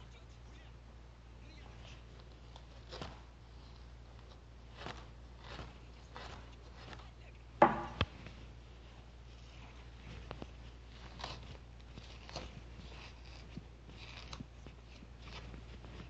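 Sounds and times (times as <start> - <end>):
sharp knock: 7.6 - 8.1.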